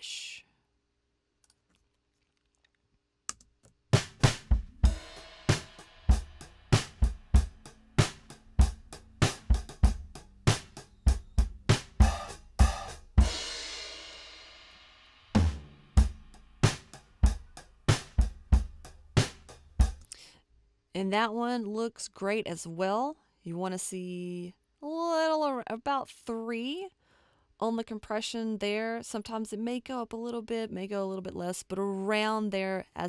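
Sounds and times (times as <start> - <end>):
drum kit groove: 3.9 - 20.1.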